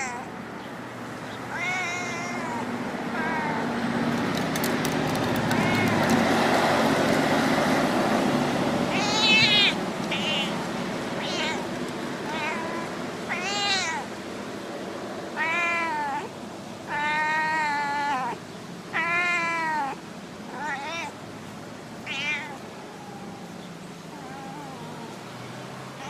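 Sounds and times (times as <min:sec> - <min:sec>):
cat meowing: 0:00.0 - 0:00.3, 0:01.5 - 0:03.7, 0:05.4 - 0:06.2, 0:08.9 - 0:14.1, 0:15.4 - 0:16.3, 0:16.9 - 0:21.2, 0:22.0 - 0:25.2.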